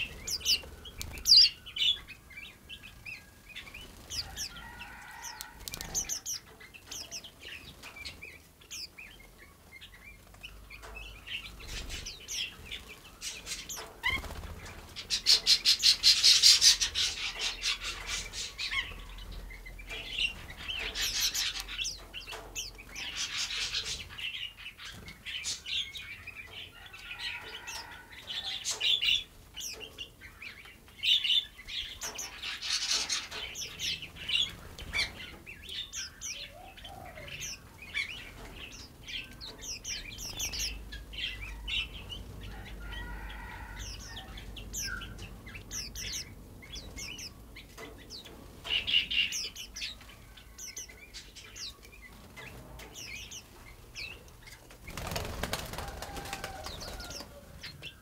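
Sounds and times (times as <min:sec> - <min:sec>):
songbirds chirping: 0:00.0 - 0:58.0
wing flutters: 0:14.0 - 0:15.3, 0:54.7 - 0:57.3.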